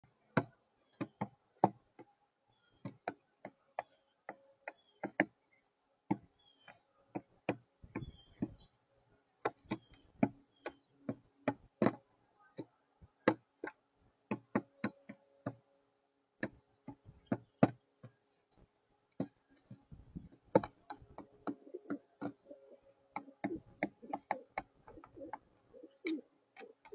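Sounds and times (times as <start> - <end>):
beak tapping on feeder tray: 6.1 - 8.7, 9.4 - 12.0, 19.2 - 26.9.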